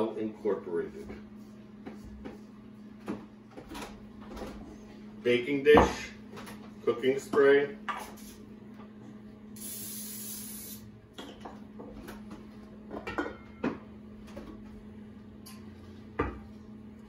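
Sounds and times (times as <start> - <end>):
cooking spray hissing: 9.6 - 10.9.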